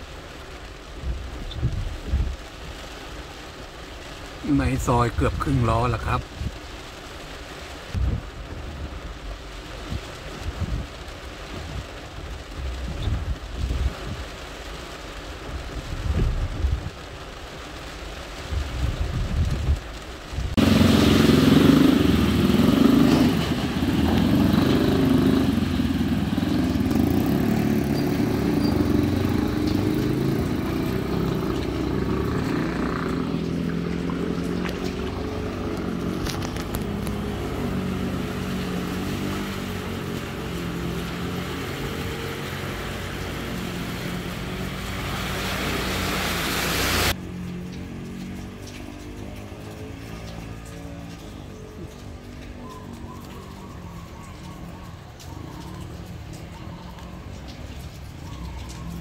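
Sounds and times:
motorcycle and car engines: 0.0 - 59.0
scooter riding through water: 20.6 - 59.0.

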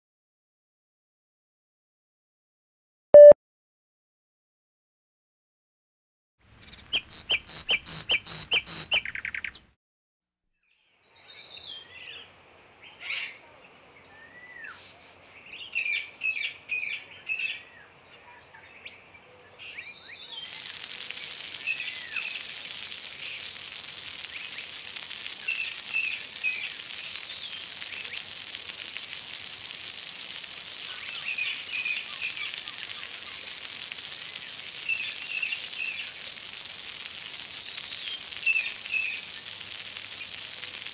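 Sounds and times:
fountain water splashing: 20.1 - 40.9.

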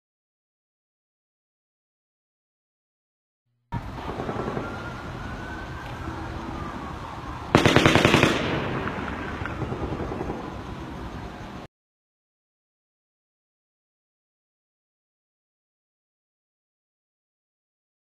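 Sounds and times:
faint siren wailing: 3.7 - 11.7
rapid automatic gunfire: 7.5 - 10.5.

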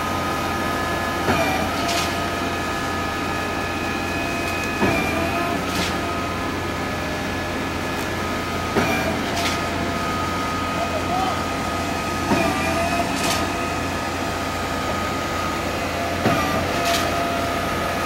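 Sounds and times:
concrete pump humming and whining: 0.0 - 18.0
pump knocking: 1.2 - 1.8, 4.8 - 5.9, 8.7 - 9.4, 12.3 - 13.2, 16.2 - 16.9.

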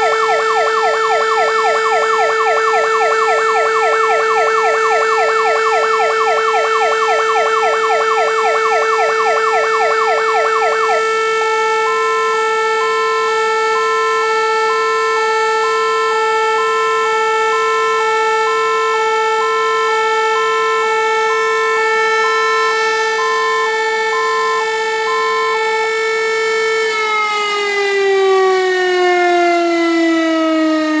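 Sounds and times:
fire engine two-tone siren: 0.0 - 31.0
warning siren steady tone: 0.0 - 31.0.

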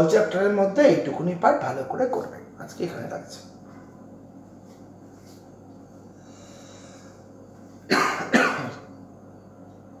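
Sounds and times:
faint room hum: 0.0 - 10.0
man coughing: 7.9 - 8.9.

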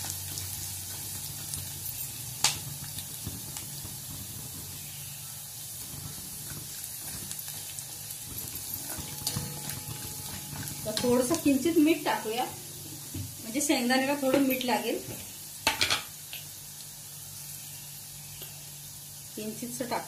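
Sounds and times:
food sizzling in hot oil: 0.0 - 20.0
spatula stirring in pan: 5.8 - 11.7.

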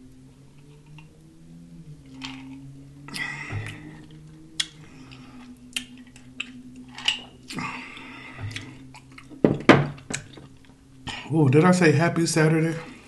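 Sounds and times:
glass set down knocking: 9.4 - 10.2.

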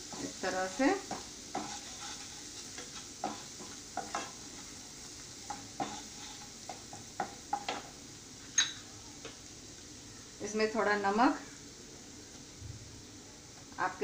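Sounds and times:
spatula scraping pan: 0.0 - 7.8
paste sizzling in butter: 0.0 - 11.3.

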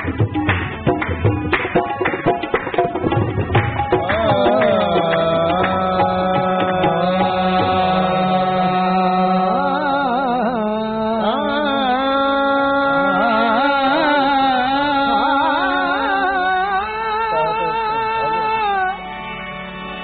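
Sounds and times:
harmonium sustained notes: 3.2 - 20.0
man singing wordlessly: 3.9 - 19.0.

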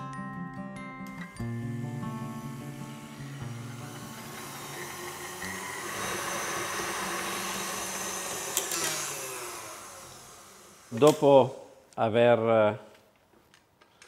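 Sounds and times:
stand mixer motor whirring: 1.5 - 11.2.

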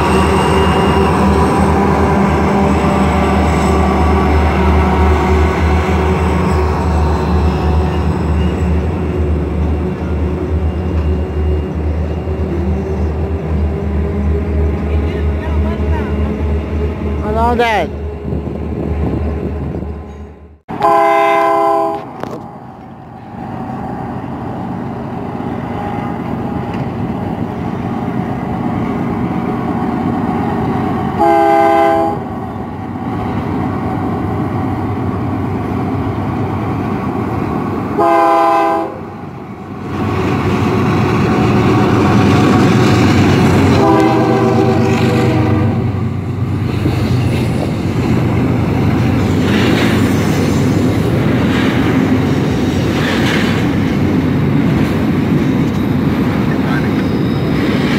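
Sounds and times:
train rumbling past: 0.0 - 57.9
train horn blasts: 20.7 - 22.2, 31.2 - 32.3, 38.0 - 39.1, 43.6 - 46.0.

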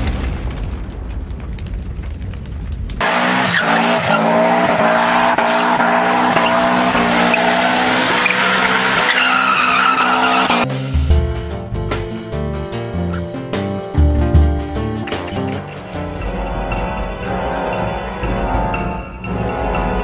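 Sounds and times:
tyre squeals: 3.3 - 10.6.

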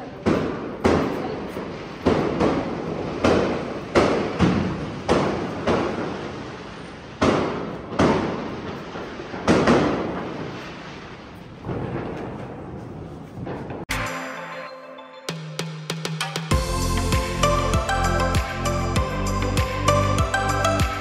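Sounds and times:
firecrackers banging: 0.0 - 13.9.

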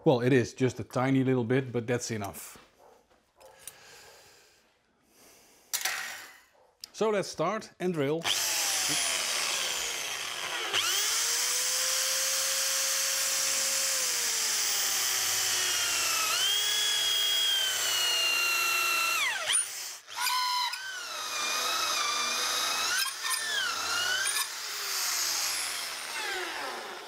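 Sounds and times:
electric drill boring into wood: 8.2 - 27.0.

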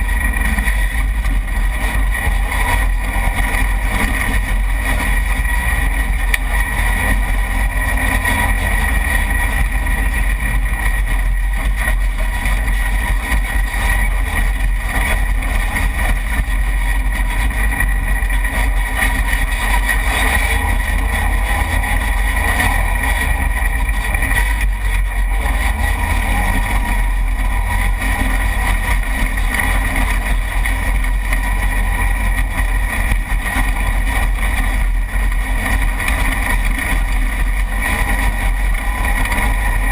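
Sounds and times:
low rumble: 0.0 - 39.9
vehicle engine running: 0.0 - 39.9.

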